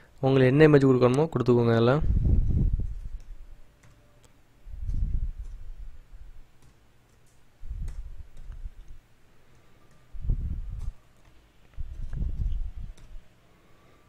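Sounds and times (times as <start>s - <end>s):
keyboard keys clicking: 10.8s - 13.3s.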